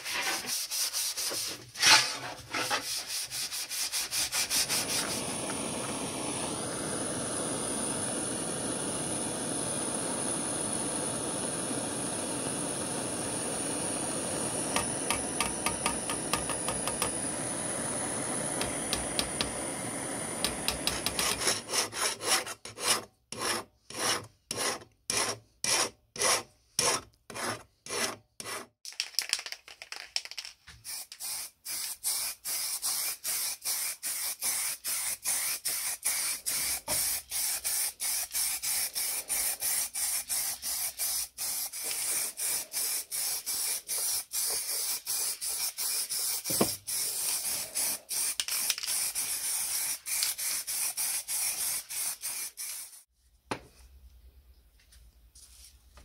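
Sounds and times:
aerosol spray can hissing: 3.0s - 21.7s, 30.8s - 53.1s
hand file rasping on metal: 21.0s - 28.7s.

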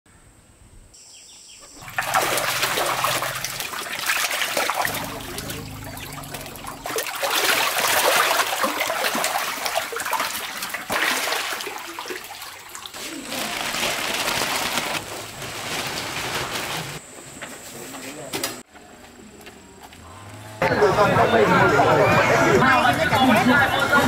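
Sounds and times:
fish thrashing in water: 1.8s - 15.4s
water splashing and sloshing: 1.8s - 17.0s.

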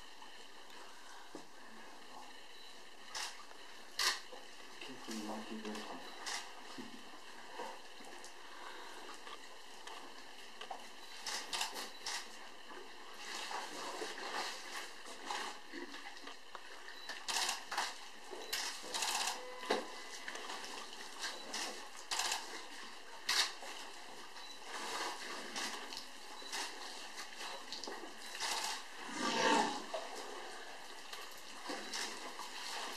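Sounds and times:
elephants splashing water: 17.0s - 32.9s.

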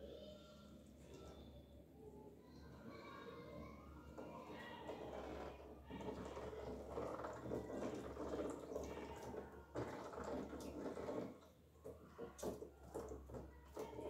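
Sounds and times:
ducklings nibbling and dabbling: 4.2s - 14.0s.

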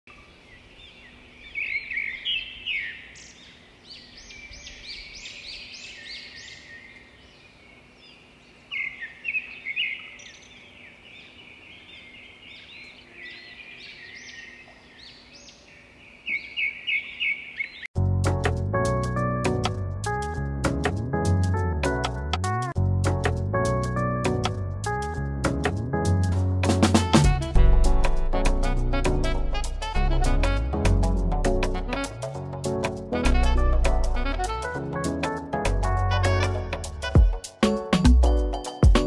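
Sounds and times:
small birds chirping: 0.1s - 17.9s
music: 18.0s - 39.0s.

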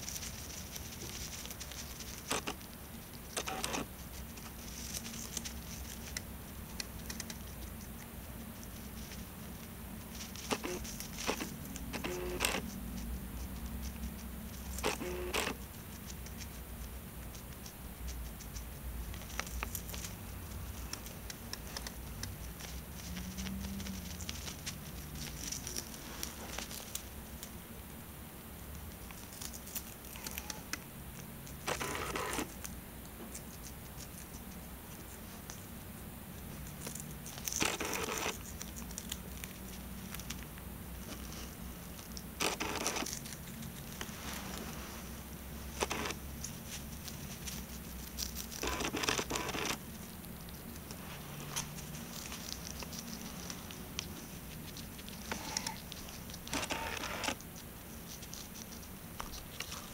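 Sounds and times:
hamster gnawing vegetable: 0.0s - 59.9s.

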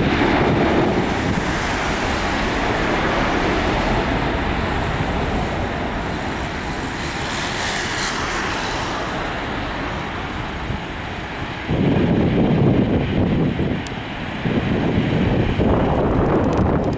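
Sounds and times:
jet engines at takeoff: 0.0s - 16.9s.

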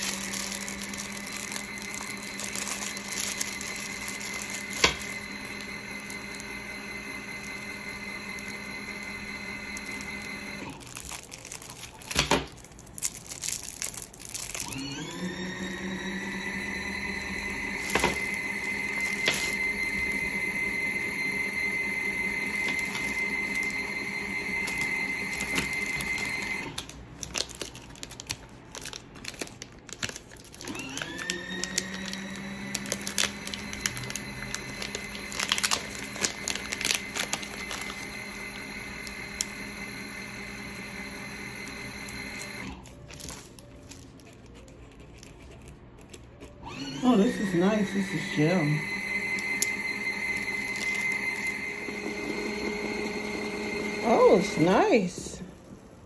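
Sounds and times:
small electric motor running: 0.0s - 11.2s, 14.2s - 26.8s, 30.6s - 42.8s, 46.6s - 55.3s
cellophane wrappers crinkling: 0.0s - 16.4s, 17.1s - 40.7s, 41.6s - 53.5s.

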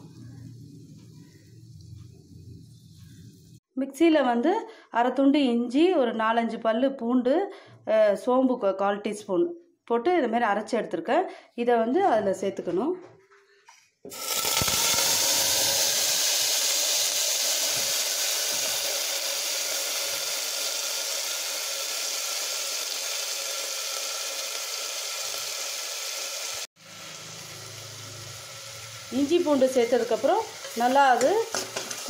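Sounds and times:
paste sizzling in hot oil: 14.1s - 32.0s.

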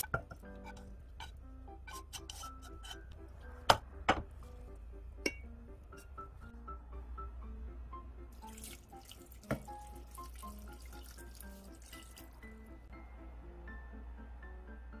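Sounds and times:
light background music: 0.0s - 15.0s
water pouring into a pot: 8.4s - 12.4s.

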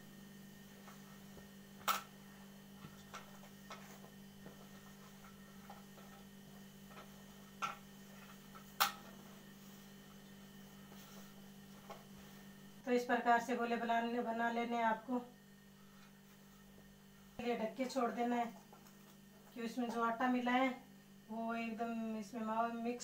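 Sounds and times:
hands kneading dough: 0.6s - 12.6s.

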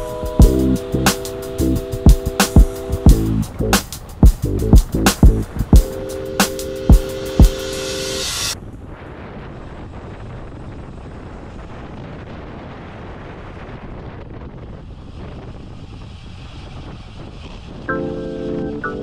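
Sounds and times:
wind rushing on microphone: 0.0s - 7.6s, 8.2s - 19.0s.

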